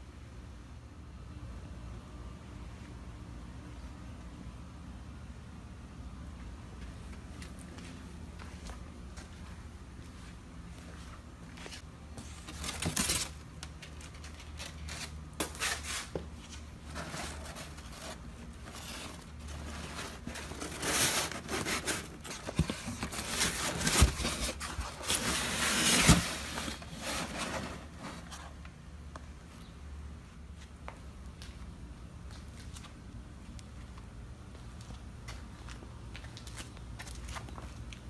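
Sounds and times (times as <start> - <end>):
packaging rustling and scraping: 11.7 - 28.6.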